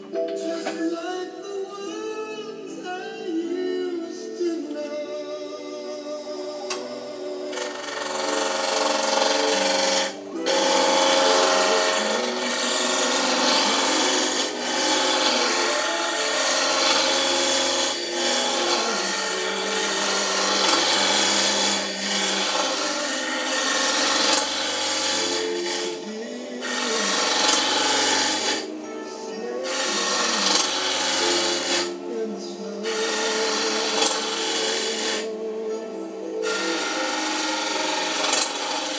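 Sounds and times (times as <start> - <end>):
background music: 0.0 - 38.9
tool scraping spinning wood: 7.5 - 28.8, 29.6 - 32.0, 32.8 - 35.3, 36.4 - 38.9.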